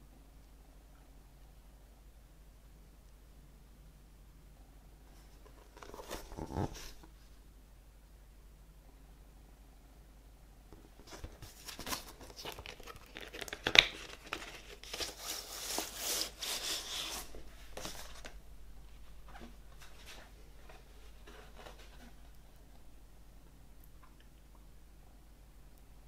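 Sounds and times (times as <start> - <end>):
paper rustling and crinkling: 5.2 - 7.1, 10.8 - 18.4, 19.0 - 22.7.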